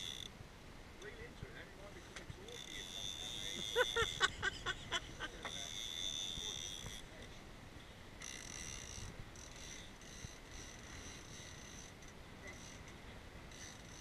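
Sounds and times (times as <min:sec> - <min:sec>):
fishing reel whining: 0:00.0 - 0:00.3, 0:02.4 - 0:07.3, 0:08.2 - 0:14.0.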